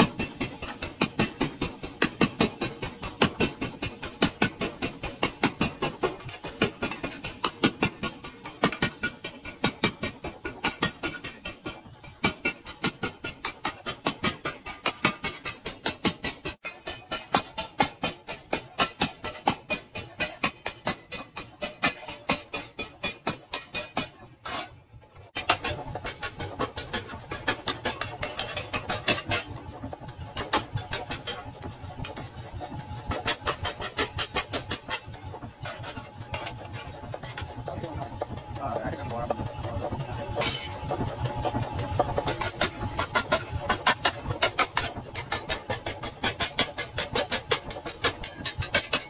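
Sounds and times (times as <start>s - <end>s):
hammer striking metal on anvil: 12.2s - 24.7s, 40.4s - 40.8s.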